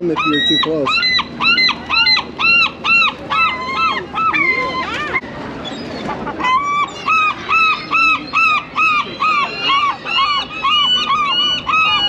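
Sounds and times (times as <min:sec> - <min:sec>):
gull calling: 0:00.0 - 0:12.0.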